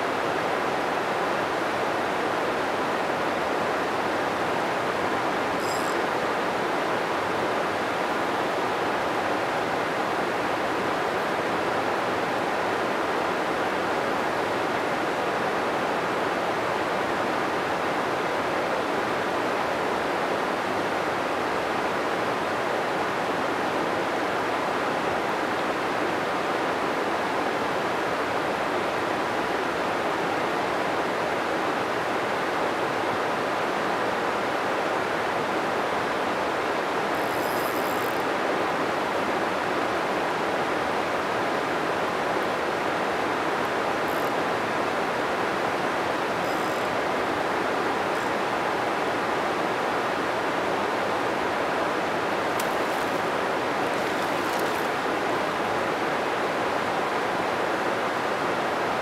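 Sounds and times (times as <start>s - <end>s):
river water rushing: 0.0s - 59.0s.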